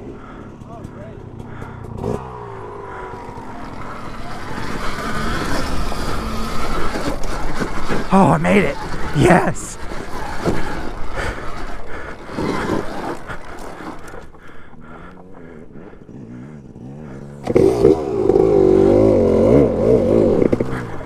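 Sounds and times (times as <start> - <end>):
dirt bike engine revving: 1.3 - 8.1, 14.8 - 21.0.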